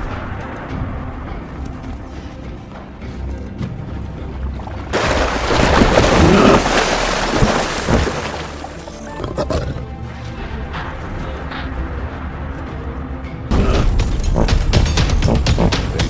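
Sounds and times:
dramatic background music: 0.0s - 16.0s
water splashing: 4.3s - 9.1s.

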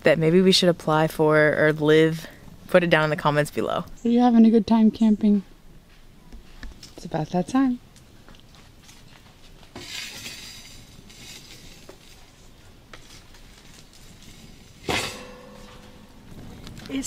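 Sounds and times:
campfire crackling: 7.8s - 17.0s
logs stirred with a stick: 9.7s - 15.7s
sharp clink: 14.9s - 16.2s.

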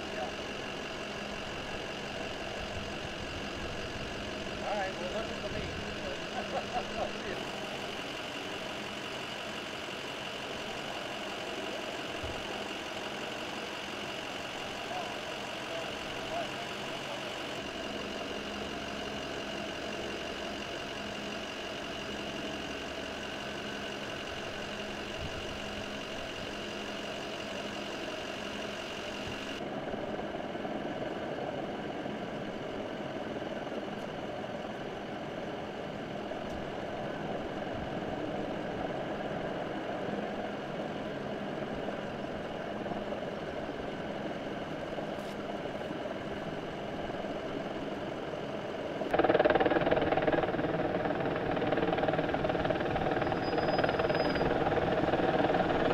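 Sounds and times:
fire truck engine idling: 0.0s - 55.9s
low hum: 36.0s - 55.9s
high whine: 44.7s - 55.9s.

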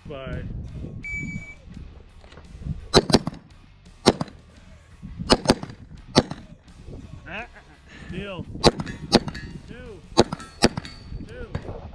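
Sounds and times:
short high electronic beep: 1.0s - 1.6s
handgun shots: 3.0s - 3.4s, 4.0s - 4.4s, 5.3s - 6.5s, 8.6s - 9.6s, 10.2s - 11.0s.

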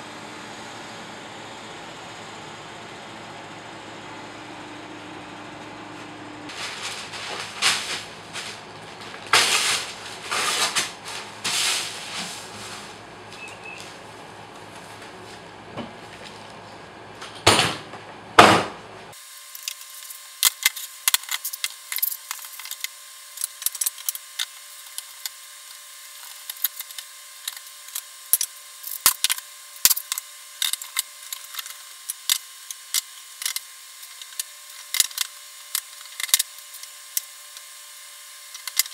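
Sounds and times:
wooden boards scraping: 6.5s - 13.0s
loud knocks on wood: 18.4s - 18.8s.

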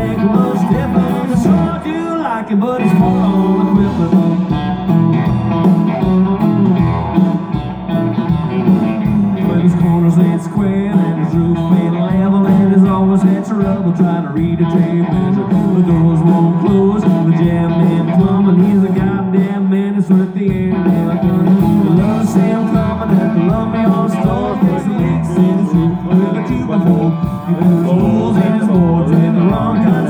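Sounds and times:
man singing: 0.0s - 4.8s, 9.1s - 30.0s
live country band: 0.0s - 30.0s.

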